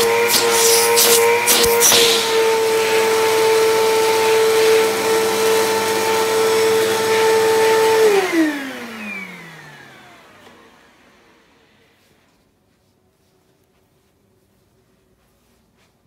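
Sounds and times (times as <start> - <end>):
vacuum motor spinning down: 0.0 - 11.9
vacuum cleaner whining: 0.0 - 12.4.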